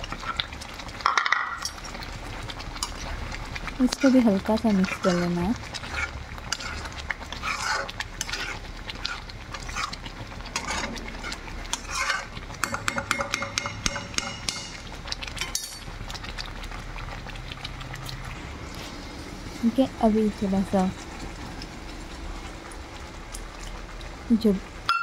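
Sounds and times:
spatula scraping metal pan: 5.0s - 14.5s.

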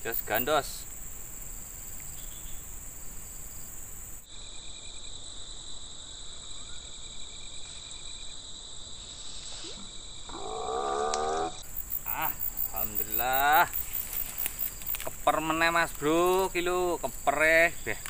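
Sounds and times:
insects trilling: 0.0s - 18.0s
pulsing insect chirp: 0.0s - 18.0s
voice-like call: 9.4s - 13.8s.

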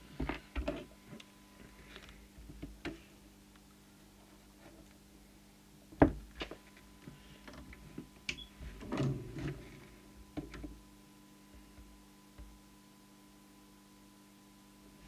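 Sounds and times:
faint electrical hum: 0.0s - 15.0s.

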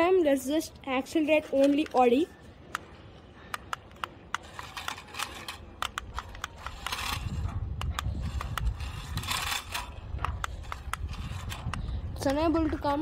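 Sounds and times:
toy car tyres scraping concrete: 4.3s - 13.0s.

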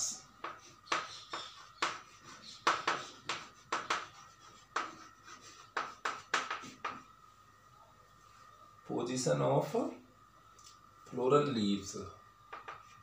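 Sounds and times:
chalk tapping and scraping: 0.4s - 7.1s, 12.5s - 13.0s.

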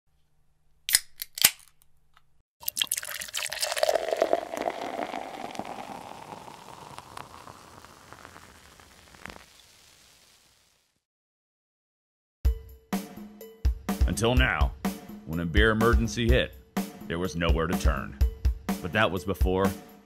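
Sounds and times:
beer pouring into a glass: 2.6s - 10.1s
beer fizzing: 2.6s - 10.8s.

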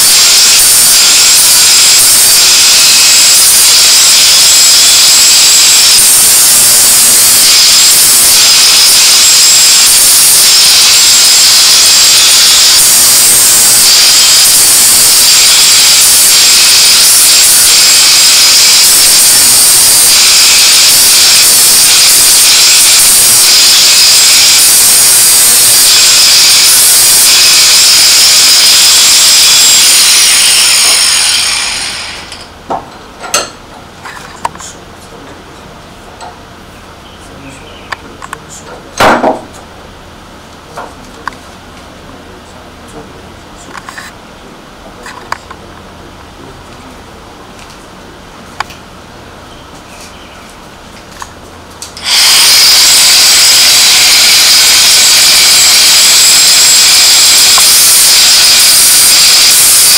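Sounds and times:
angle grinder grinding metal: 0.0s - 32.5s, 51.9s - 59.9s.

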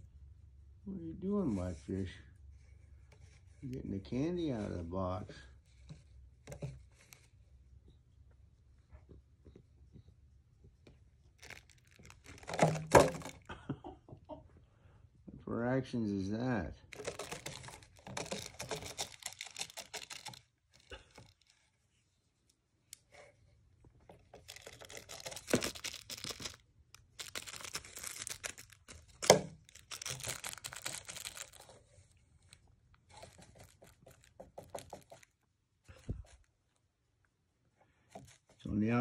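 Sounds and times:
plastic packaging crinkling: 11.4s - 13.5s, 16.8s - 21.6s, 24.4s - 35.4s.

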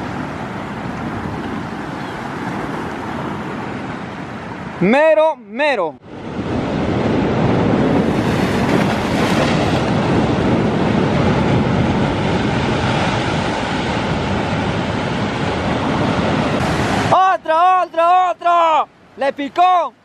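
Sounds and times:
waves breaking on rocks: 6.4s - 19.8s.

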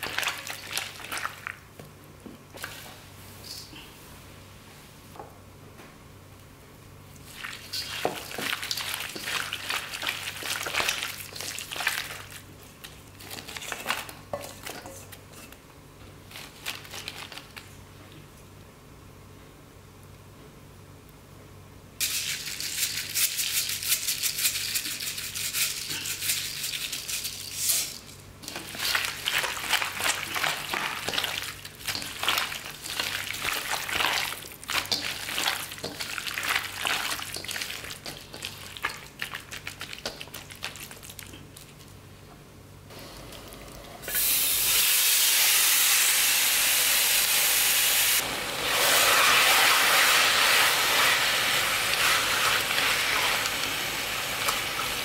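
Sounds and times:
hand squishing meat in a bowl: 7.2s - 14.0s, 28.4s - 42.0s
meat sizzling in a wok: 44.1s - 55.0s.

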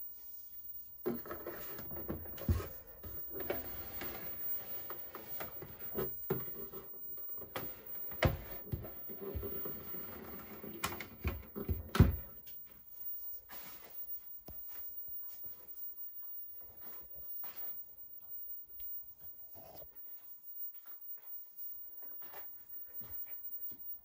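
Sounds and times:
knocks and clicks handling cabinet: 7.4s - 12.4s.

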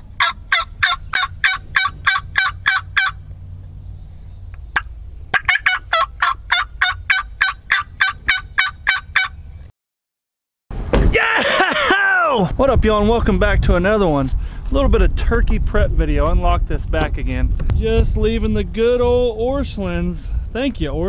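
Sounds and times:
turkey call clucks: 0.0s - 3.2s, 4.6s - 9.4s.

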